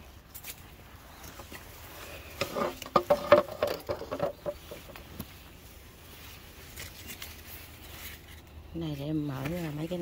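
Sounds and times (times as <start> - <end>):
leaves and twigs rustling on microphone: 0.0 - 10.0.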